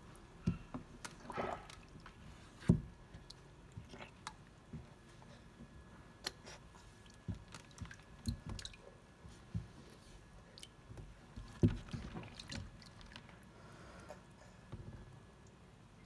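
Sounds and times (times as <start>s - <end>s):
body bumping plastic tub: 11.4s - 12.8s.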